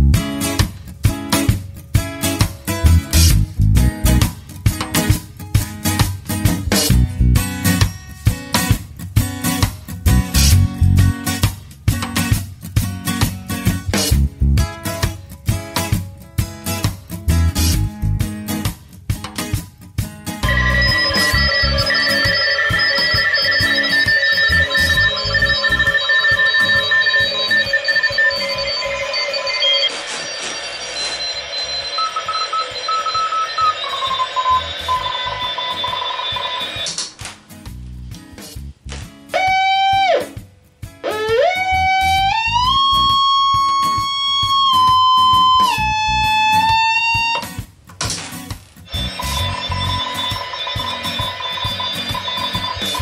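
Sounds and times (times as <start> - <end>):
radio heterodyne whistle: 20.4 - 36.9
morse code beeps: 20.4 - 37.0, 48.9 - 53.0.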